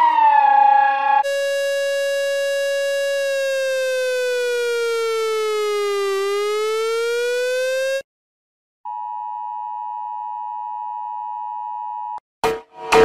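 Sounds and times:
buzzy electronic alert tone: 0:01.2 - 0:08.0.

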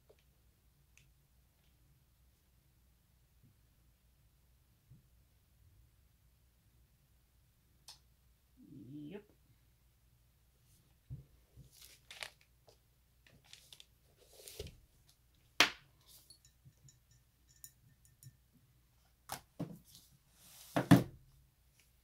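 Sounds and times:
rustling of supplies: 0:11.6 - 0:15.2.

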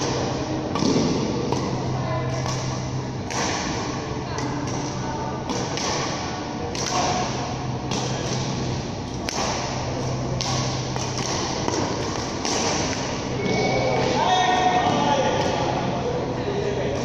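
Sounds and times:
racket striking shuttlecock: 0:00.0 - 0:13.3
steady low hum: 0:00.0 - 0:17.0.

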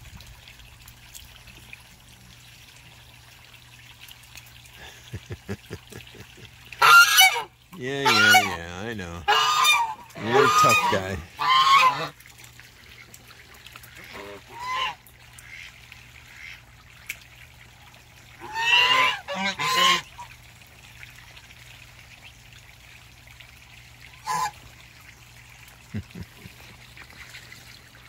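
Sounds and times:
goose honking: 0:06.8 - 0:08.6, 0:09.2 - 0:12.2, 0:14.0 - 0:15.6, 0:18.4 - 0:20.2, 0:24.2 - 0:24.6.

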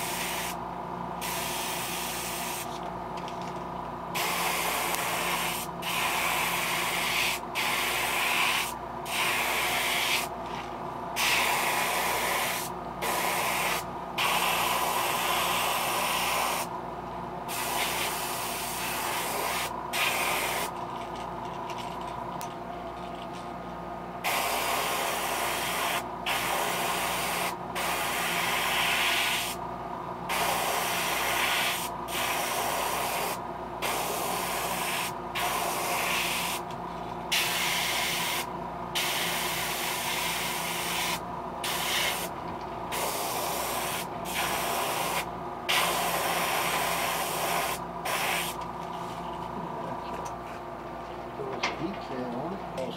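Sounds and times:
airbrush spraying hiss: 0:00.0 - 0:00.6, 0:01.2 - 0:02.8, 0:04.2 - 0:10.3, 0:11.2 - 0:16.7, 0:17.5 - 0:20.7, 0:24.2 - 0:29.6, 0:30.3 - 0:36.6, 0:37.3 - 0:42.3, 0:42.9 - 0:48.6
steady low hum: 0:00.0 - 0:28.8, 0:29.4 - 0:52.9.

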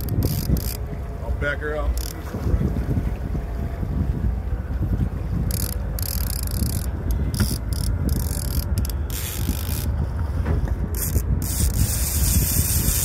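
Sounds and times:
fishing reel hissing: 0:00.0 - 0:00.8, 0:05.5 - 0:09.9, 0:11.0 - 0:13.0
boat rumble: 0:00.0 - 0:13.0
wind: 0:00.0 - 0:13.0.

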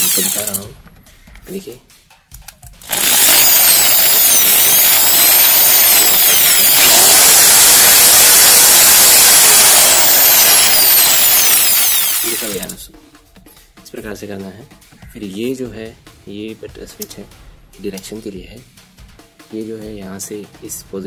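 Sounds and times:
impact drill motor whine: 0:00.0 - 0:00.6, 0:02.8 - 0:12.7.

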